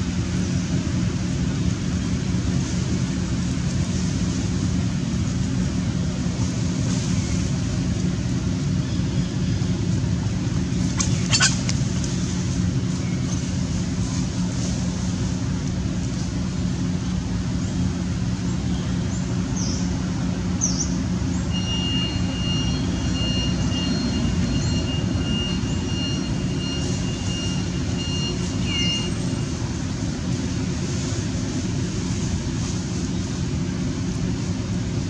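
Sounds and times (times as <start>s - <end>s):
low mechanical hum: 0.0s - 35.0s
high pulsing whistle-like tone: 21.5s - 29.5s.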